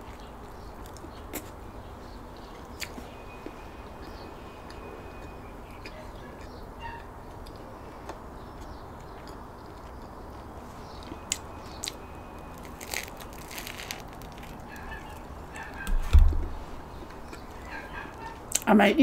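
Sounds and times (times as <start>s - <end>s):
chewing: 0.0s - 1.6s, 2.4s - 15.8s, 17.0s - 18.6s
crusty sandwich crackling: 11.2s - 15.8s.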